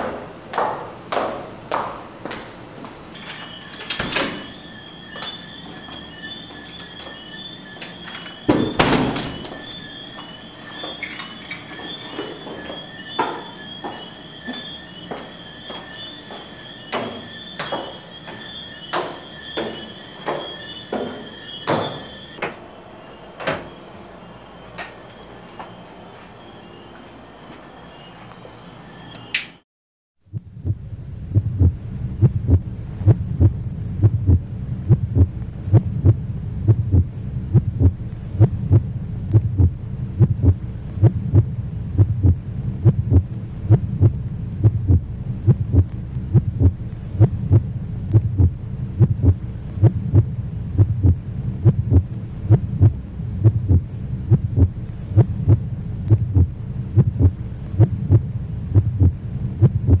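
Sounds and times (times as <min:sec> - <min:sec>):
steady low hum: 0:00.0 - 0:29.6, 0:30.2 - 1:00.0
heartbeat thumps: 0:30.3 - 1:00.0.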